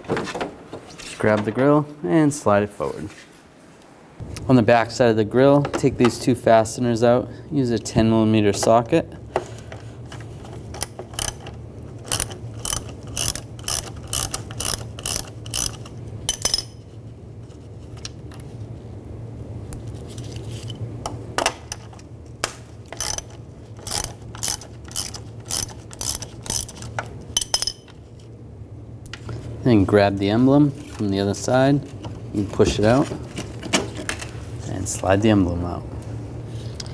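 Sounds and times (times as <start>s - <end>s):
ratchet clicking: 10.8s - 16.7s, 23.0s - 27.6s.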